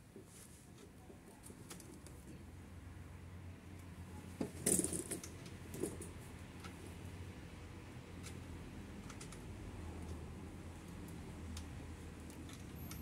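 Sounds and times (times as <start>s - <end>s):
small knocks and clatter: 4.4s - 6.8s.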